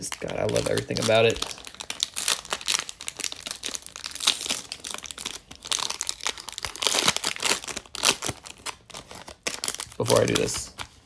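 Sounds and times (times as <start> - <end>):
foil wrapper tearing and crinkling: 0.0 - 11.0.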